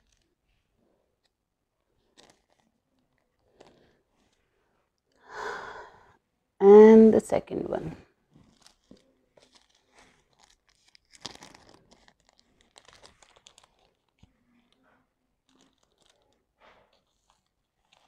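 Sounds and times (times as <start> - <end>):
plastic sheet crinkling: 2.0 - 3.9, 8.4 - 18.0.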